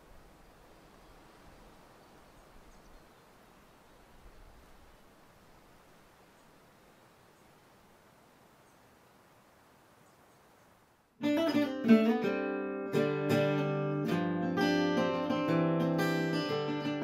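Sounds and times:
guitar music: 11.2s - 17.0s.

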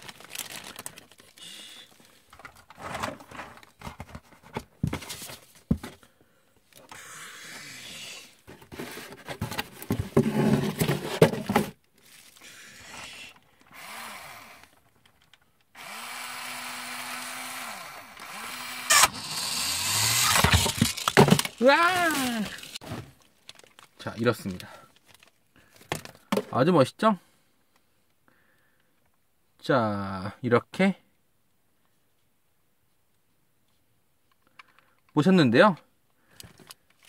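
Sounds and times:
small electric motor whirring: 12.4s - 14.8s, 15.7s - 21.0s
plastic clicks and clatter: 14.7s - 15.7s, 20.3s - 21.6s, 34.3s - 35.2s.

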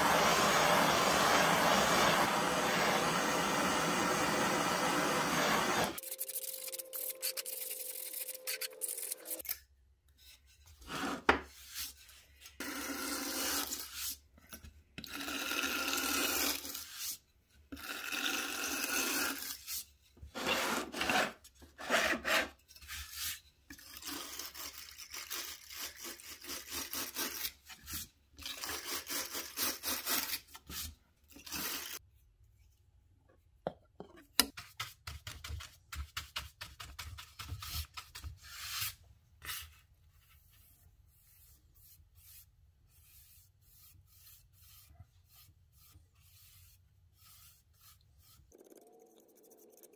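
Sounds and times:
hand sanding wood: 40.4s - 49.6s.

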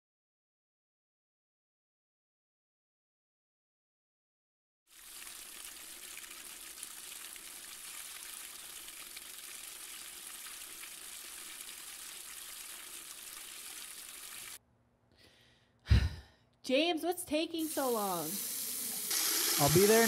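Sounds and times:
running water hiss: 4.9s - 14.6s, 17.6s - 20.0s.

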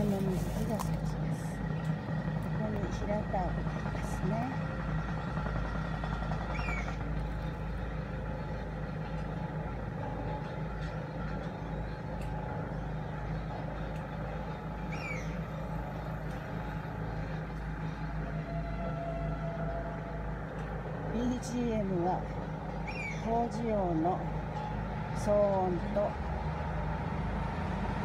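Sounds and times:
construction machinery rumble: 0.0s - 28.0s
road traffic passing: 0.0s - 28.0s
bird chirps: 14.9s - 15.4s, 22.8s - 23.3s.

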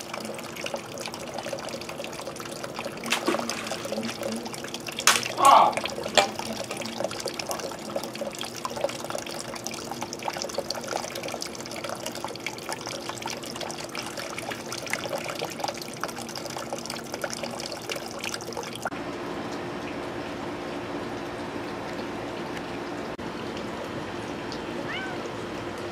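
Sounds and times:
water trickling with small splashes: 0.0s - 25.9s.

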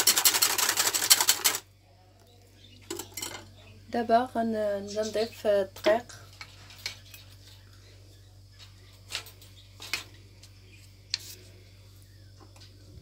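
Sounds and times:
low steady hum: 1.6s - 13.0s
kitchenware clicks and knocks: 2.9s - 3.5s.

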